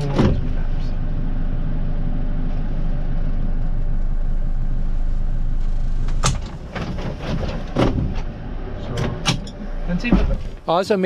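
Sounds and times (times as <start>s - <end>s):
motorboat engine running: 0.0s - 10.1s
sharp knocks: 6.1s - 8.4s.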